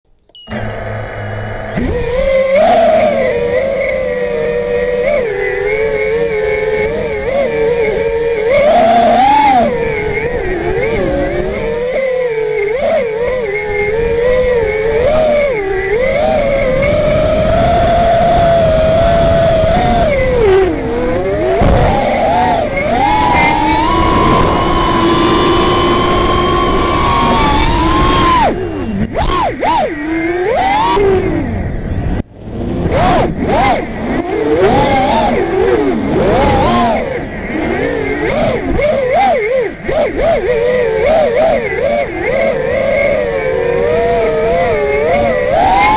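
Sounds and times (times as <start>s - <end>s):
drone motors and propellers whining: 0.1s - 45.9s.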